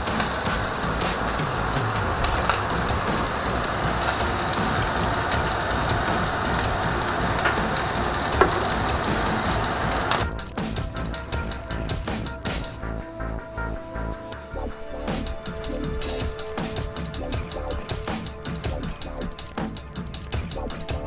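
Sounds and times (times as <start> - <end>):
meat sizzling on a grill: 0.0 - 10.2
small pops: 0.0 - 10.2.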